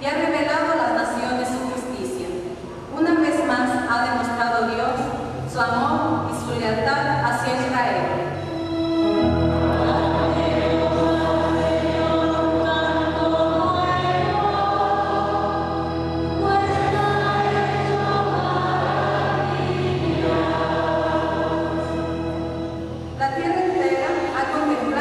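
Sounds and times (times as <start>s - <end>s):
instrumental accompaniment: 8.3s - 23.2s
church choir singing: 8.4s - 24.9s.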